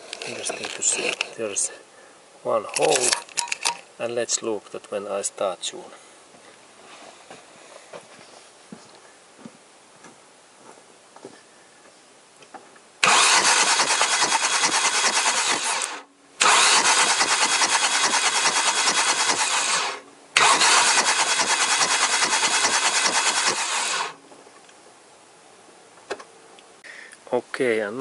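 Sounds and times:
starter cranking engine: 0:13.0 - 0:24.2.

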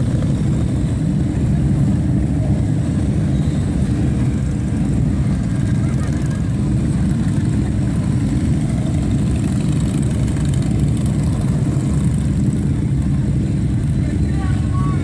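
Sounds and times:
motorcycles riding past: 0:00.0 - 0:15.0.

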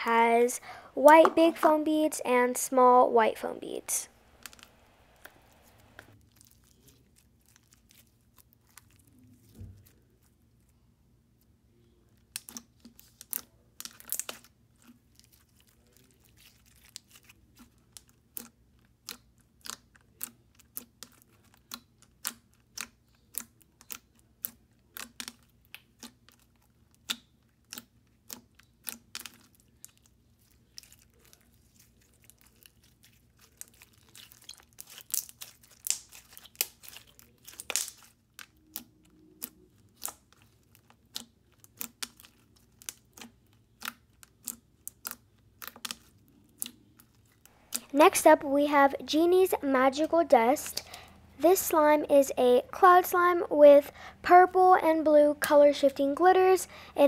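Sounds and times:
slime clicking and popping: 0:18.0 - 0:30.1, 0:33.4 - 0:47.1.

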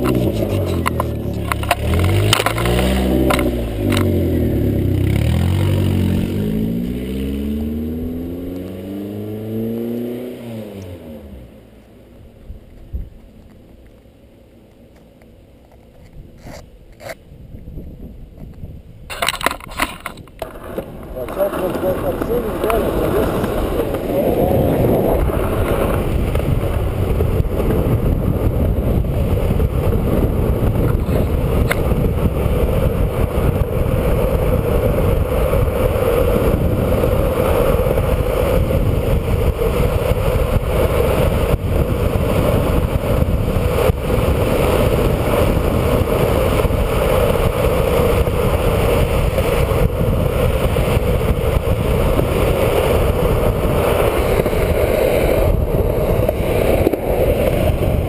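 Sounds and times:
board clicking over road cracks: 0:00.0 - 0:04.2, 0:18.4 - 0:28.1, 0:42.6 - 0:58.0
skateboard wheels rolling on asphalt: 0:00.0 - 0:58.0
wind buffeting microphone: 0:16.0 - 0:58.0.

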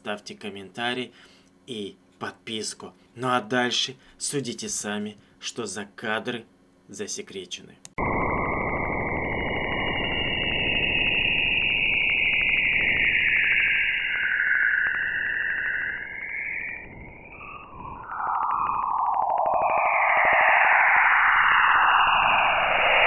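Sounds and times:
static hiss: 0:08.0 - 0:23.0
high whistling tones: 0:08.1 - 0:23.0.

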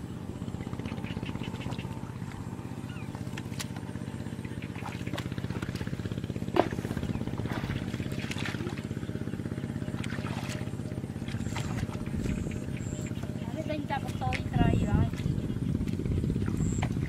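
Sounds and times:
small engine running: 0:00.0 - 0:17.0.

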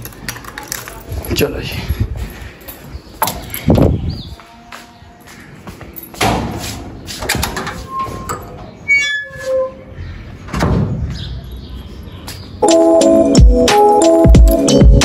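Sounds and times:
gate squeal: 0:07.6 - 0:10.0.

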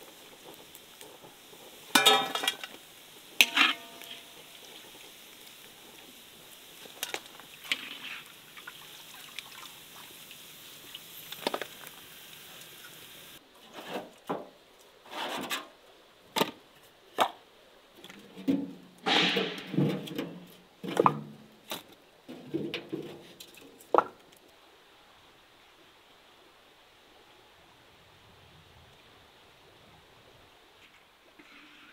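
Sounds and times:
soft frying hiss: 0:00.0 - 0:31.9
logs dropped into metal wheelbarrow: 0:01.9 - 0:02.8, 0:03.4 - 0:04.6, 0:13.6 - 0:16.6, 0:18.0 - 0:24.2.

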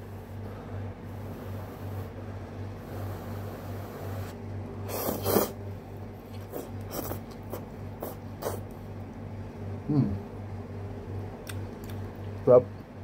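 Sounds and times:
person slurping noodles: 0:04.9 - 0:05.6, 0:06.4 - 0:08.6
mouth sounds: 0:06.4 - 0:08.7.

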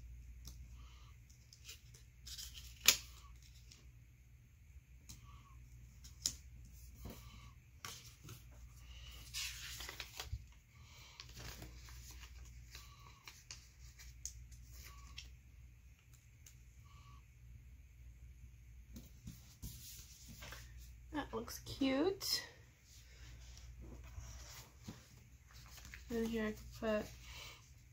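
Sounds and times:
paper pages rustling: 0:07.8 - 0:15.3, 0:19.2 - 0:20.9, 0:23.4 - 0:27.2.

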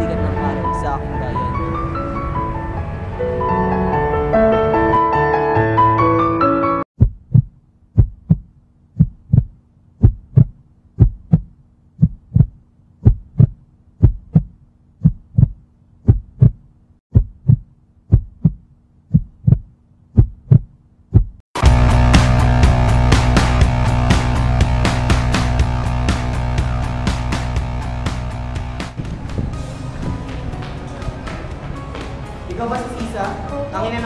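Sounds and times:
piano music: 0:00.0 - 0:06.8
heartbeat thumps: 0:07.0 - 0:29.4
band music with guitar: 0:21.6 - 0:30.2.

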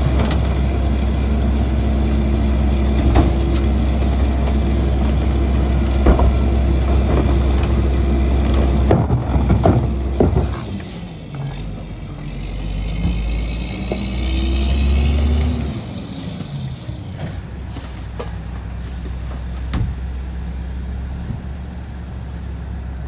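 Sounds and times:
truck engine idling: 0:00.0 - 0:12.9, 0:17.4 - 0:23.0
trash cart knocking: 0:06.0 - 0:10.6.

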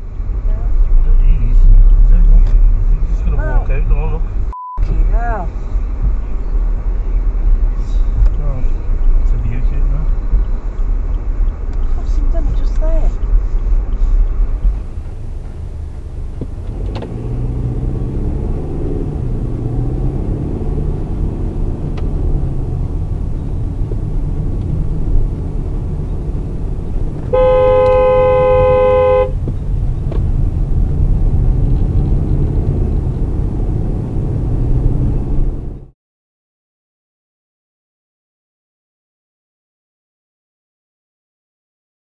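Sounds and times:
car engine and road rumble: 0:00.0 - 0:35.9
car horn blast: 0:27.2 - 0:29.5.

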